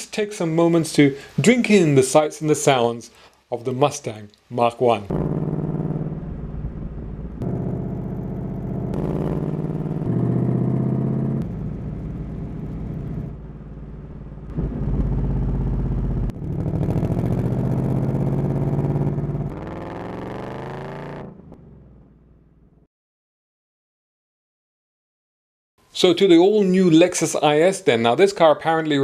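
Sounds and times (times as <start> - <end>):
car engines accelerating: 5.1 - 21.8.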